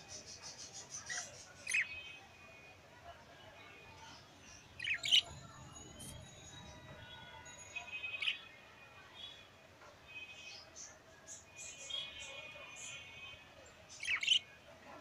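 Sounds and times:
budgerigar sharp chirps: 4.8 - 5.2, 14.0 - 14.5
budgerigar warbling chatter: 4.8 - 5.3, 14.0 - 14.5.

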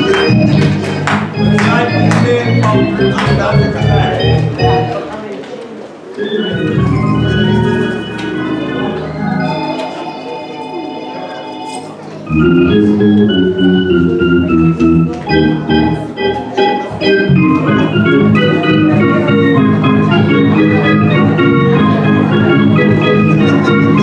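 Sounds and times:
church organ playing chords: 0.0 - 5.1, 6.1 - 24.0.

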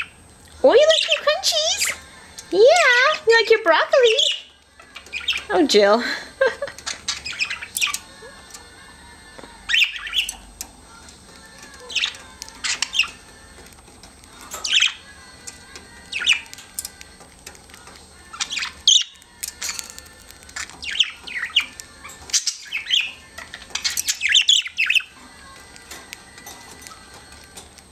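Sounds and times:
budgerigars chirping and squawking: 0.0 - 8.8, 9.6 - 27.9.

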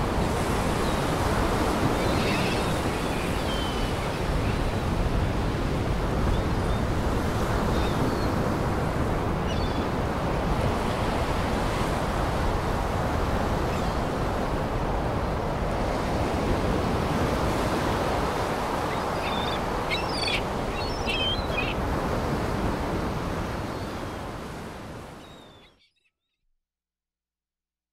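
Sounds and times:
surf washing: 0.0 - 25.2
bird chirps: 18.9 - 21.8.

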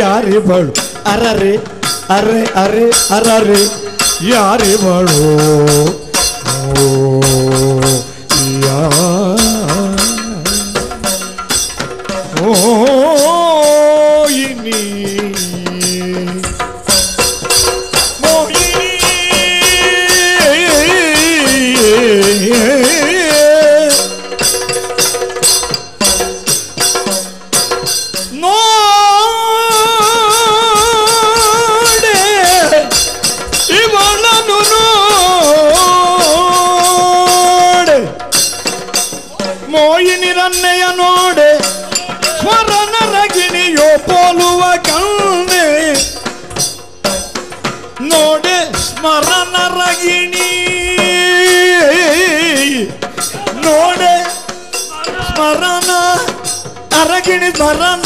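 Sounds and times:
fast drumming: 0.0 - 58.0
jingling metal percussion: 0.0 - 58.0.

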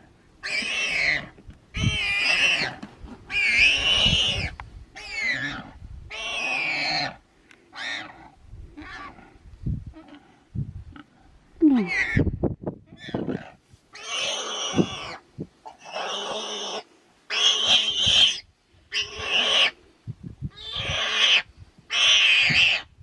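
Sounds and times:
warthog squealing in distress: 0.4 - 7.2, 7.8 - 9.3.

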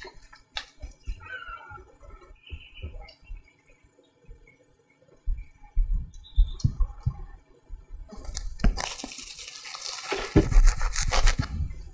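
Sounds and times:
plastic film crinkling: 8.2 - 11.6.

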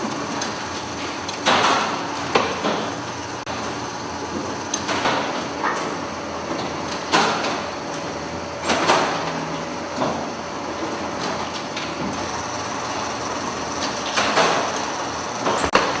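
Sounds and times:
production line machinery running: 0.0 - 16.0
loud machinery clunks: 8.6 - 10.3, 13.8 - 16.0.

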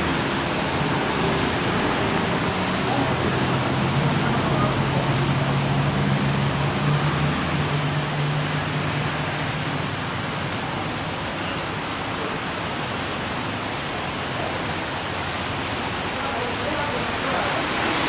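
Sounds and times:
passing traffic engine hum: 0.0 - 11.4
heavy rain on a wet road: 0.0 - 18.0.

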